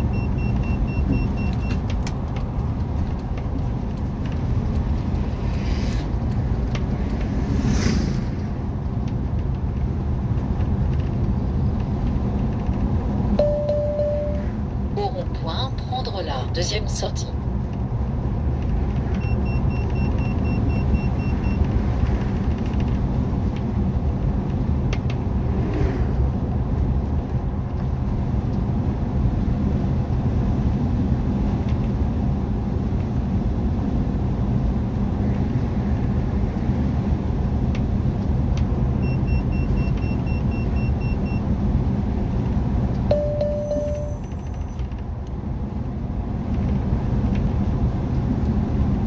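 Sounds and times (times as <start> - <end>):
engine and road rumble: 0.0 - 49.0
rapid high beeps: 43.1 - 44.5.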